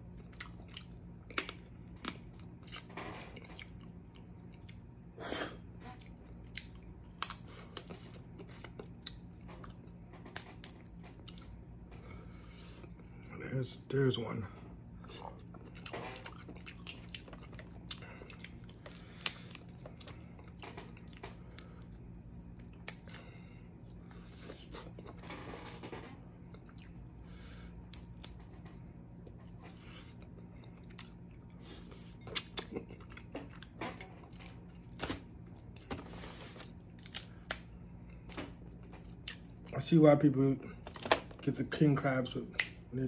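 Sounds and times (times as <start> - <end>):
chewing: 0.1 - 4.9, 5.9 - 10.0, 15.0 - 23.3, 26.5 - 28.6, 29.2 - 35.0.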